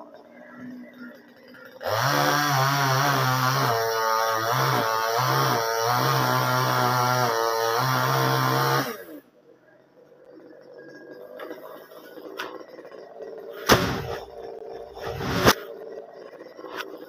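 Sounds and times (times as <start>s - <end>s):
chainsaw cutting wood: 1.2s - 9.2s, 13.7s - 15.6s.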